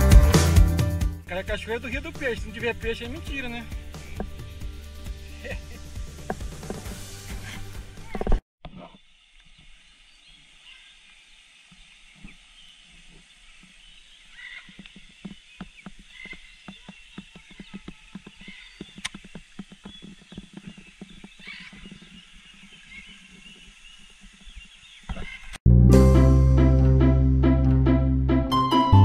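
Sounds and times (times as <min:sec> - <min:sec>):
macaws calling: 0:13.1 - 0:25.6.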